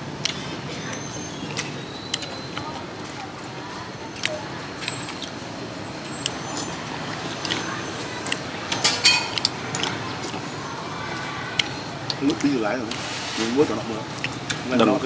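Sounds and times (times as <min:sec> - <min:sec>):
spoons and bowls clinking: 0:08.7 - 0:09.5.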